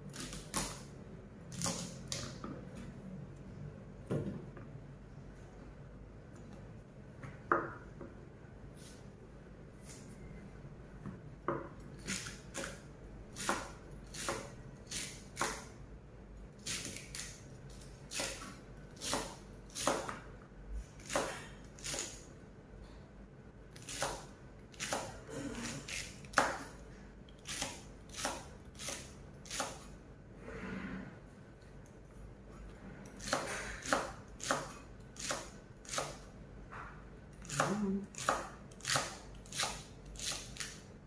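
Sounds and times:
knife chopping celery on board: 13.4 - 15.7, 18.1 - 20.2, 23.8 - 26.7, 27.4 - 29.9, 33.2 - 36.2, 37.4 - 40.8.

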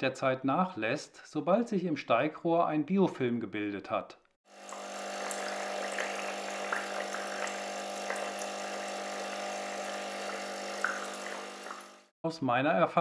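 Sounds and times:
air pump humming: 4.5 - 12.1
water bubbling and popping: 4.7 - 12.1.

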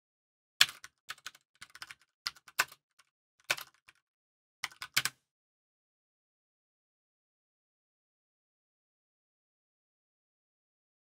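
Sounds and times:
computer keyboard typing: 0.6 - 2.8, 3.4 - 4.0, 4.6 - 5.1.

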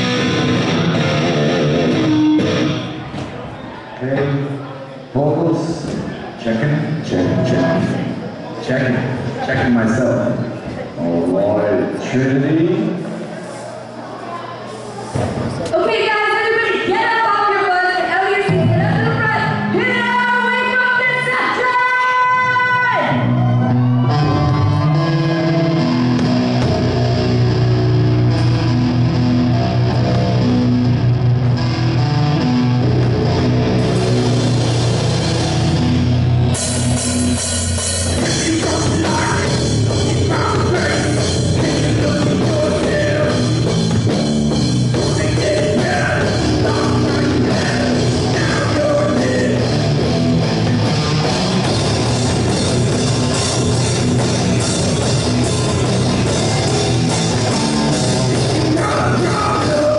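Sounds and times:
electric bass: 0.0 - 3.1, 23.1 - 59.9
electric guitar: 0.0 - 3.2, 23.0 - 59.9
drum kit: 24.3 - 31.7, 32.4 - 59.9
person singing: 38.2 - 43.7, 44.9 - 49.8, 58.4 - 59.9.

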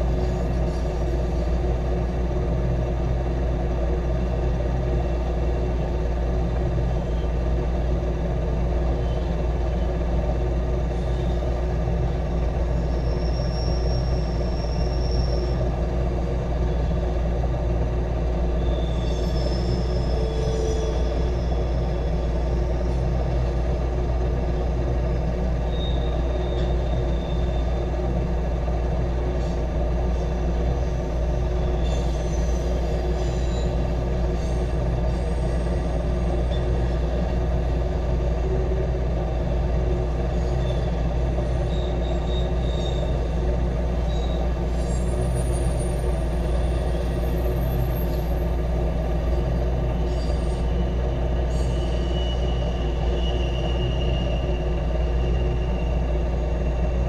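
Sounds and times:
train wheels rumbling on rail: 0.0 - 57.0
wheels squealing: 12.5 - 17.0, 18.4 - 23.2, 25.6 - 27.9, 29.4 - 37.2, 40.2 - 57.0.

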